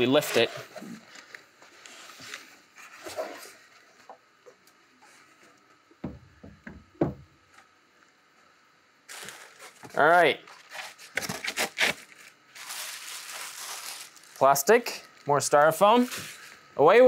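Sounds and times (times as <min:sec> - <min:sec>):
plastic and styrofoam rustling: 0:00.0 - 0:03.8, 0:09.1 - 0:16.6
heavy machine thumping on wooden bench: 0:06.0 - 0:07.3.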